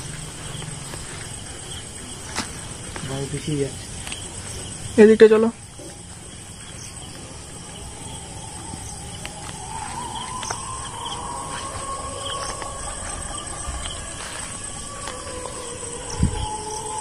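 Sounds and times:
crickets trilling: 0.0s - 17.0s
faint wavering low tone: 5.7s - 17.0s.

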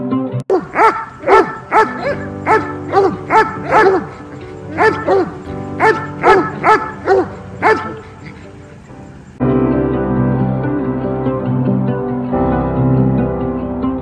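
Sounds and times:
dog barking: 0.5s - 8.8s.

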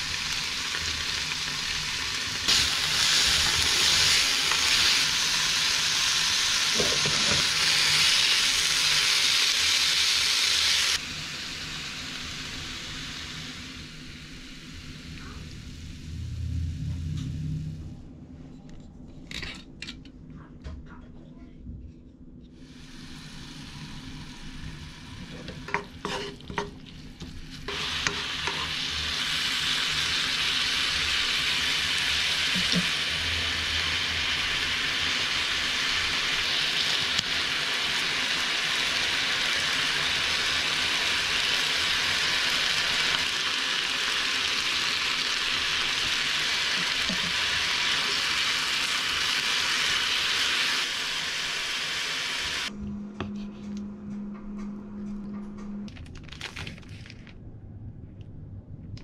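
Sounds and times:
food sizzling in frying pan: 0.0s - 16.1s, 22.6s - 52.7s.

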